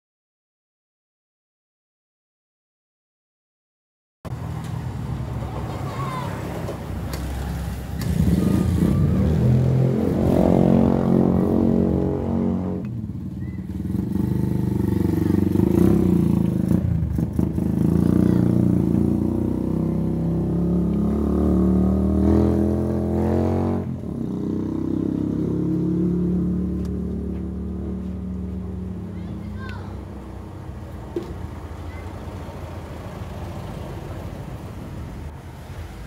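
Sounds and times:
vehicle engine running: 25.7s - 35.5s.

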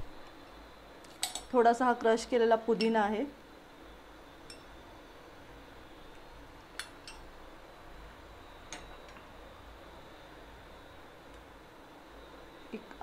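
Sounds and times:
low room hiss: 0.0s - 13.0s.

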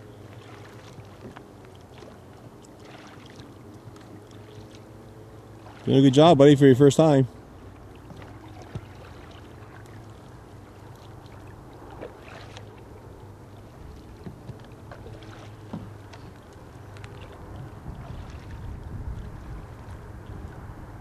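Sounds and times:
paddle splashes: 0.0s - 21.0s
knocks on a kayak: 15.7s - 16.0s
wind rumble on microphone: 15.7s - 21.0s.

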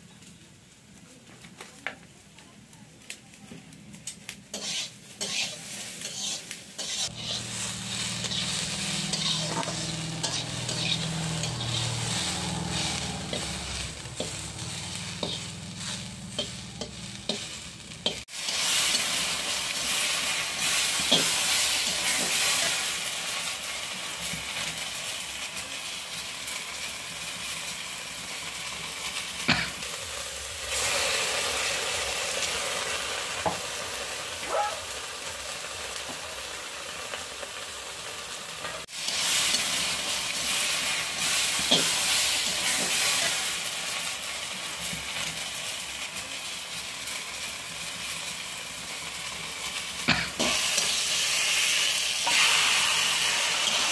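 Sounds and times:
spice paste sizzling in a wok: 0.0s - 53.9s
metal spatula scraping a pan: 4.5s - 23.0s, 38.9s - 43.7s, 50.1s - 53.9s
low hum: 7.2s - 18.0s.

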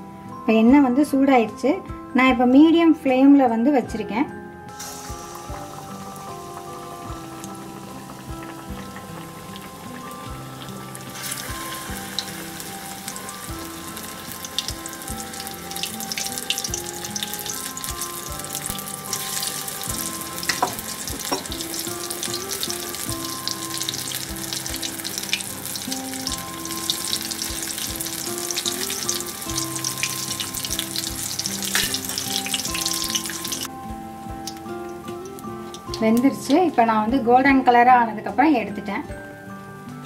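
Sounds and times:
soft background music: 0.0s - 40.0s
batter deep-frying in hot oil: 4.7s - 33.7s.

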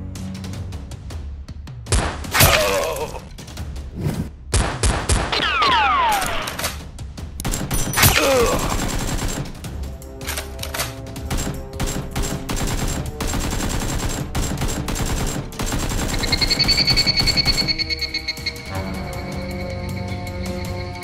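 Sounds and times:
background music: 0.0s - 21.0s
rapid gunfire sound effects: 4.5s - 18.0s.

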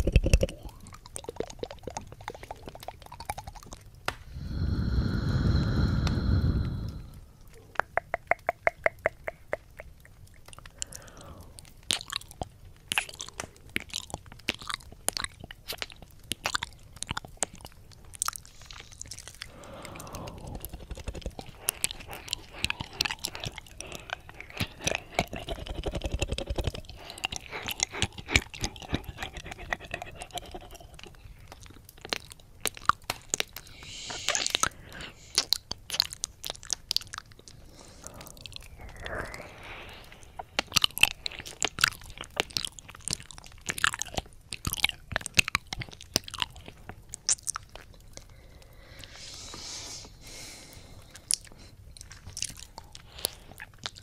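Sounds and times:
wet mouth licking and smacking: 0.0s - 49.4s, 50.8s - 54.0s
soft breathing: 4.2s - 7.7s, 10.6s - 11.8s, 18.4s - 31.6s, 33.5s - 35.6s, 37.4s - 42.3s, 48.0s - 51.9s, 52.6s - 53.7s
tongue-flutter clicks: 5.9s - 17.8s, 19.2s - 39.5s.

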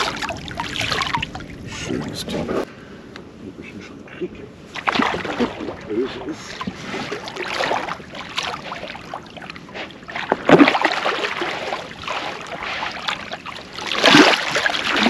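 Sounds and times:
fish splashing: 0.0s - 1.6s, 4.7s - 15.0s
water sloshing against boat: 0.0s - 2.6s, 4.6s - 15.0s.

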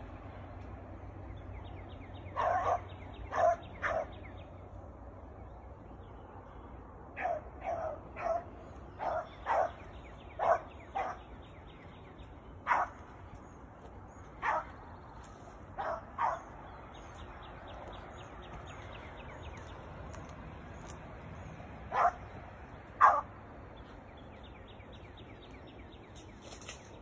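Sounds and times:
dog barking: 2.4s - 4.2s, 7.2s - 11.3s, 12.6s - 13.0s, 14.4s - 14.8s, 15.8s - 16.5s, 21.9s - 22.3s, 23.0s - 23.3s.

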